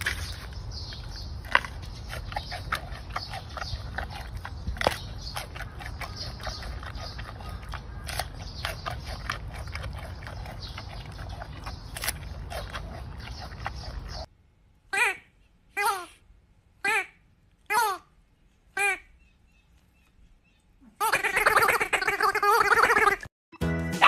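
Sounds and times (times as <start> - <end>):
panda crunching bamboo: 0.0 - 14.3.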